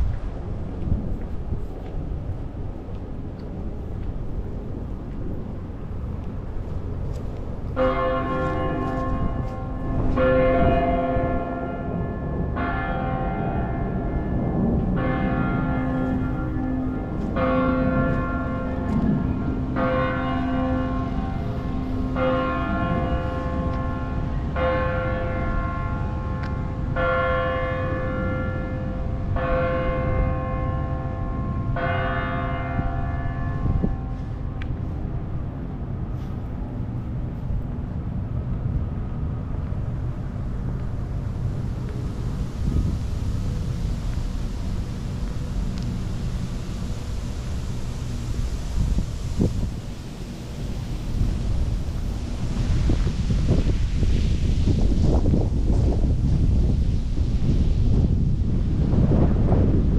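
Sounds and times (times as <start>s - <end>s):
large bell tolling: 7.8s - 34.6s.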